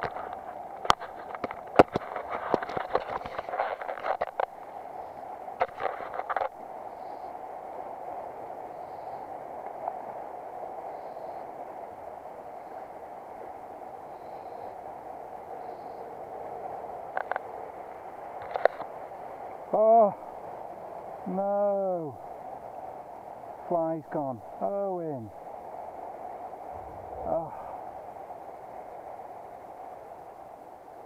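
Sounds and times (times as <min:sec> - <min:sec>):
clicks and knocks near microphone: 0:00.0 - 0:04.5, 0:05.6 - 0:06.6.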